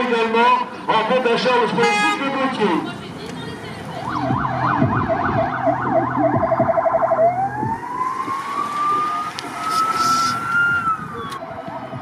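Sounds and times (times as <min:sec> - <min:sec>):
electronic siren: 0:04.0 - 0:12.0.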